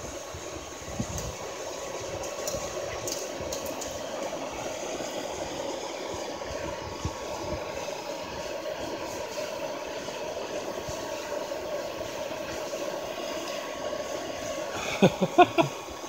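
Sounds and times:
hair dryer humming: 0:10.4 - 0:16.0.

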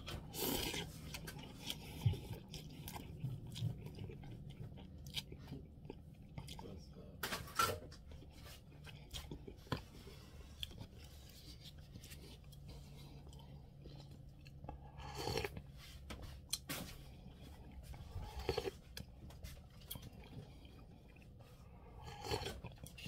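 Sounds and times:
person chewing: 0:00.0 - 0:07.2, 0:07.8 - 0:23.0
person slurping noodles: 0:00.2 - 0:02.7
person sipping broth: 0:00.2 - 0:03.0.

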